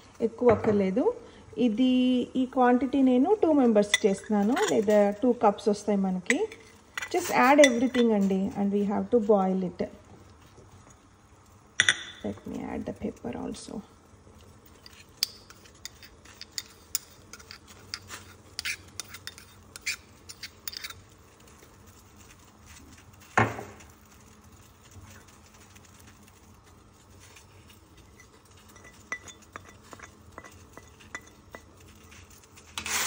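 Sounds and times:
kitchenware clinking: 3.8 - 5.1, 6.3 - 8.3, 11.8 - 12.4, 28.1 - 31.8
spoon scraping a plate: 14.7 - 21.1, 28.0 - 33.0.

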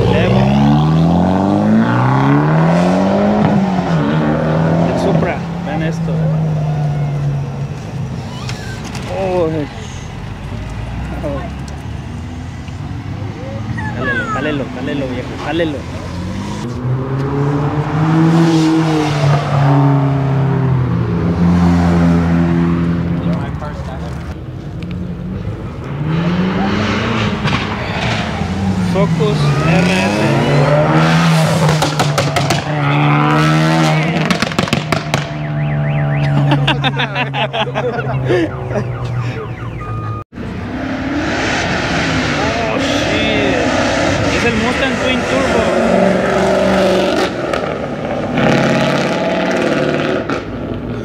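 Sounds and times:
car engine revving: 0.0 - 51.0
car alarm siren and chirps: 35.3 - 36.6, 37.9 - 40.3.

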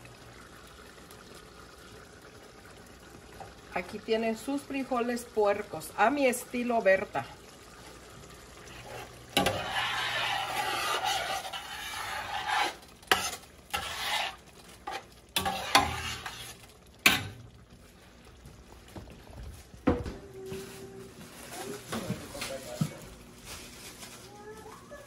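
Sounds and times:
pot bubbling and sizzling: 0.0 - 25.0
pot and utensils clinking: 8.8 - 17.5.

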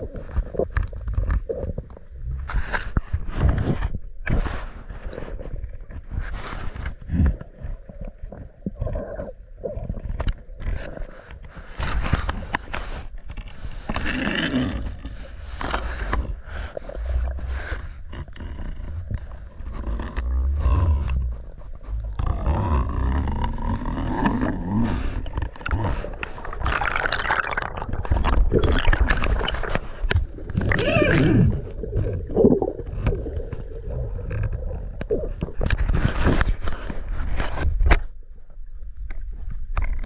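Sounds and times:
air bubbles gurgling: 20.6 - 36.1.

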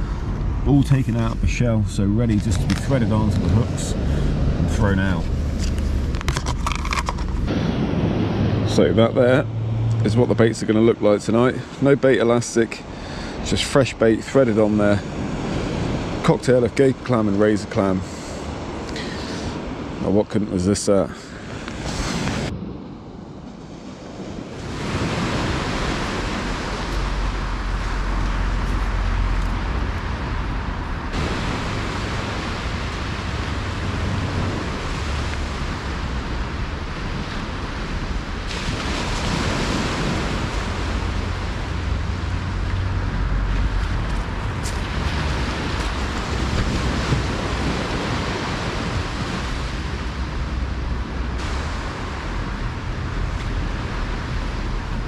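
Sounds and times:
small waves washing onto beach: 0.0 - 55.0
wind buffeting microphone: 21.4 - 55.0.

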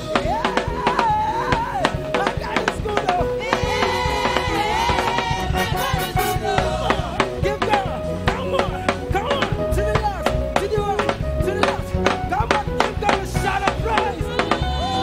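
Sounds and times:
people singing: 0.0 - 9.6, 13.3 - 15.0
drum strikes: 0.0 - 15.0
gospel band playing: 0.0 - 15.0.

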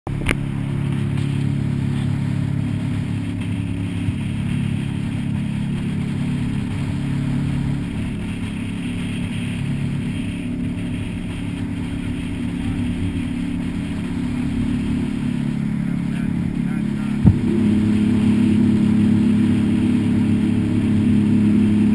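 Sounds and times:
boat engine running: 0.0 - 21.9
wind: 0.1 - 21.9
water hissing: 0.7 - 21.9.

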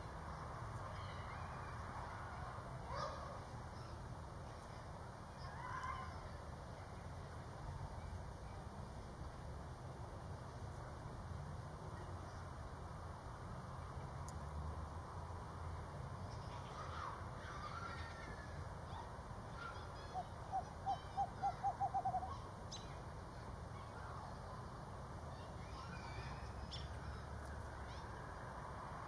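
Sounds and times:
owl hooting: 20.1 - 22.5.

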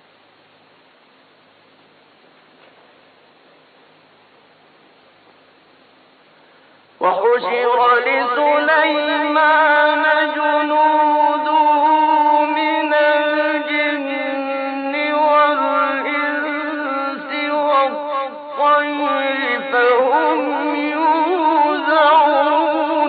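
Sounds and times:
man chanting melodically: 7.0 - 23.0.

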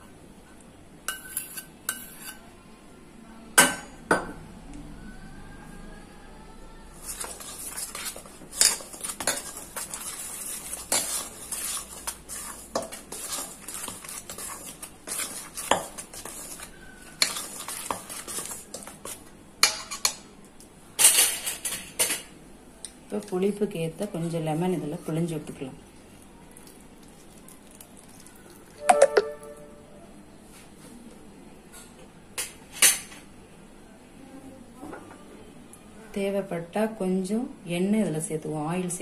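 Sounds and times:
metal spoon stirring in bowl: 1.1 - 2.4, 7.0 - 20.2.

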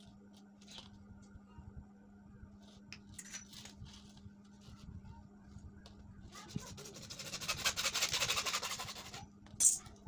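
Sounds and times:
hand saw cutting plastic pipe: 6.9 - 9.2.

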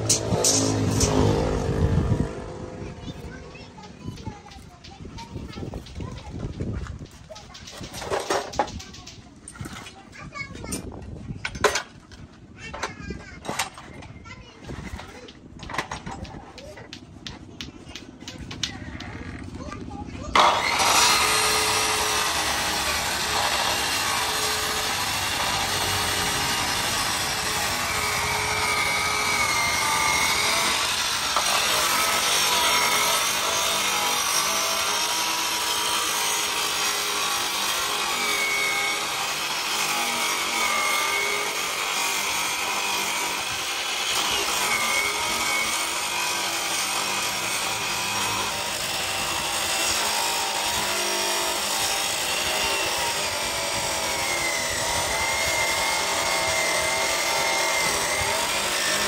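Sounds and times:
chop saw grinding steel: 0.0 - 59.0.

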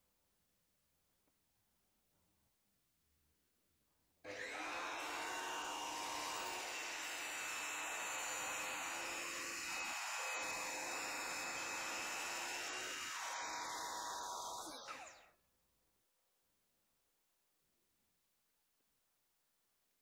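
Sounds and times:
miter saw cutting aluminum: 4.3 - 15.3.

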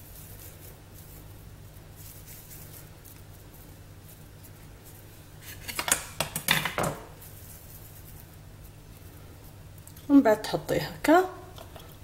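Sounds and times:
knife and board clattering on countertop: 5.6 - 7.1.

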